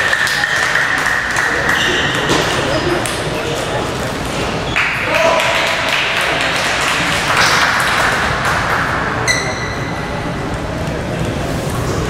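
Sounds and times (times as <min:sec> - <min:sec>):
sports hall background noise: 0:00.0 - 0:12.0
high squeak: 0:09.3 - 0:10.1.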